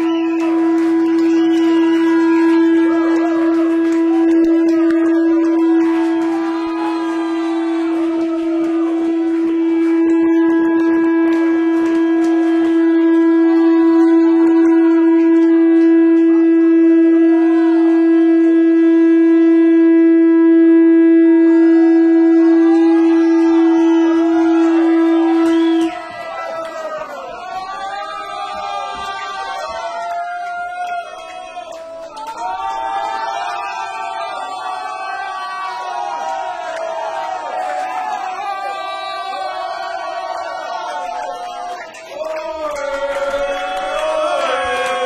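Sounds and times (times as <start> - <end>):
rock band holding high note: 0.0 - 29.2.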